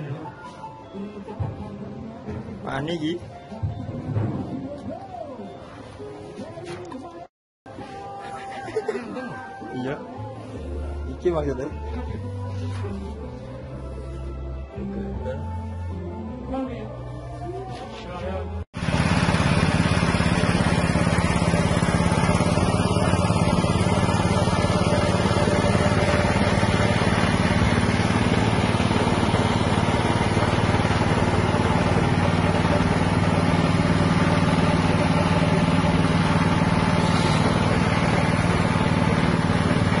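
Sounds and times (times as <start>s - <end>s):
small petrol engine running: 18.8s - 40.0s.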